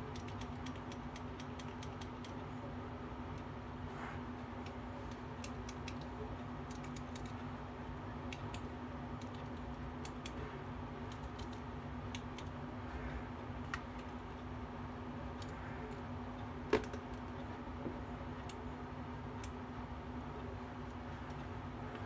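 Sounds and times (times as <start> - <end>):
mechanical pencils clicking: 0.0 - 2.4, 4.6 - 7.4, 11.0 - 12.6.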